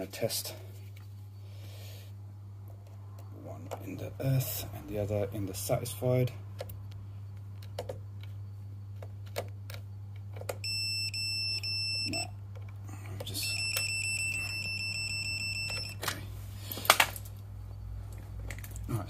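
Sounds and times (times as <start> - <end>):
voltage tester beeping: 5.9 - 12.5, 13.3 - 16.1
probes clicking against terminals: 9.0 - 16.2.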